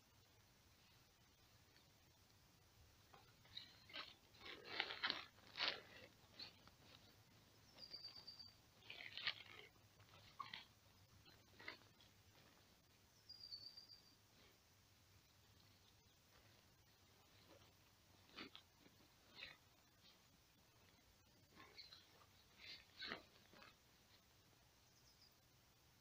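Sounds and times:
fabric and plastic tarp rustling: 0:03.4 - 0:07.1, 0:08.8 - 0:10.7.

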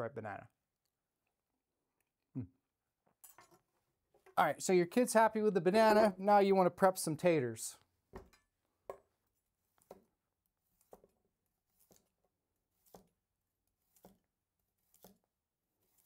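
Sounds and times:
knife cutting on board: 0:09.7 - 0:16.0.

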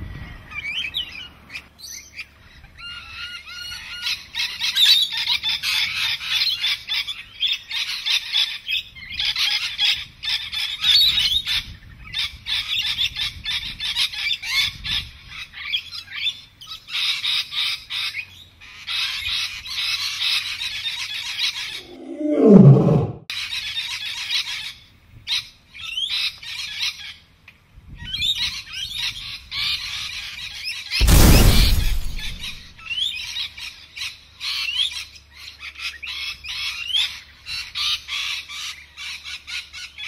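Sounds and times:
lion calling: 0:21.7 - 0:23.2.

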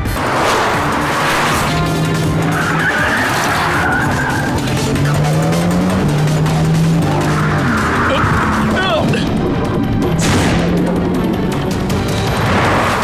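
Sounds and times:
tyres screeching: 0:00.0 - 0:09.3
action music: 0:00.0 - 0:13.0
car engines revving: 0:00.0 - 0:13.0.

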